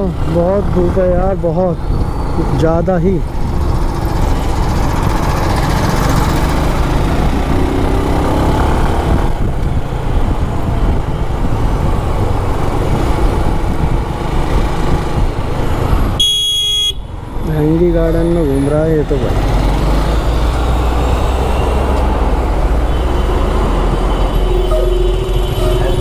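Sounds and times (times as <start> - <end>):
city traffic: 0.0 - 26.0
horn beeping: 16.2 - 17.2, 22.8 - 26.0.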